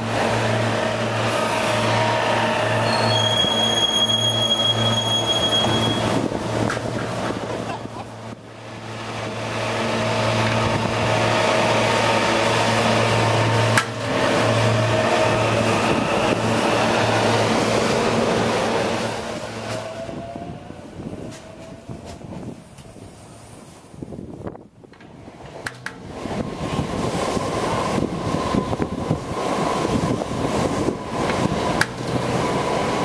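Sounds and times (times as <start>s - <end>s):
electric train running past: 0.0s - 33.0s
train wheel noise: 0.0s - 33.0s
short rising whine: 0.5s - 6.3s.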